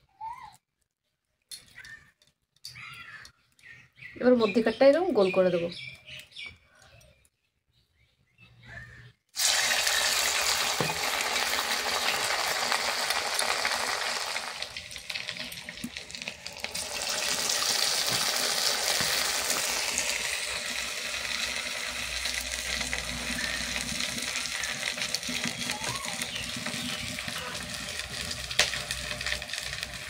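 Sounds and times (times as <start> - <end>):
batter sizzling in hot oil: 9.4 - 30.0.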